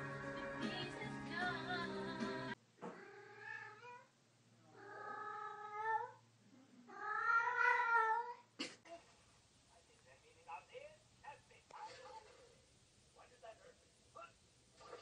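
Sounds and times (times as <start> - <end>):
cat meowing: 2.9 - 4.1, 6.9 - 8.5.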